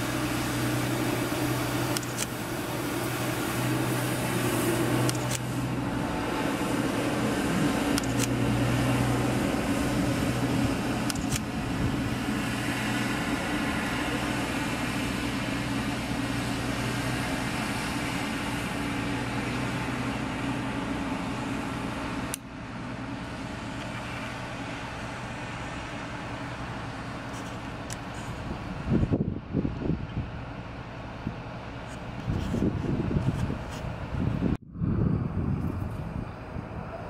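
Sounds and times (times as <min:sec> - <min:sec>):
diesel engine running: 0:00.0 - 0:37.0
click: 0:05.1 - 0:05.4.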